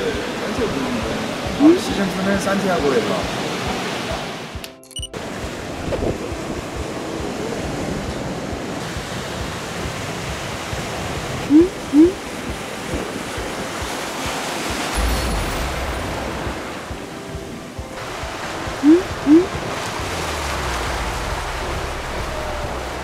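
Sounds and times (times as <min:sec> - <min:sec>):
ocean surf breaking: 0:00.0 - 0:04.6, 0:05.2 - 0:23.0
wind on microphone: 0:05.2 - 0:23.0
short rising whistle tones: 0:11.5 - 0:12.2, 0:18.8 - 0:19.5.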